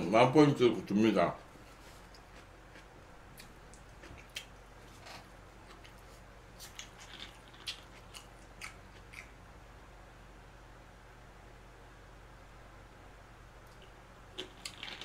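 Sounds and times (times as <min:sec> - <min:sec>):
wet chewing clicks and smacks: 0:02.1 - 0:06.0, 0:06.6 - 0:09.4, 0:13.7 - 0:15.0.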